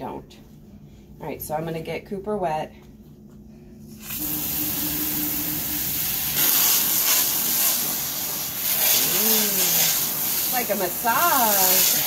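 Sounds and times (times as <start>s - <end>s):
sprayer hissing water: 4.0s - 12.0s.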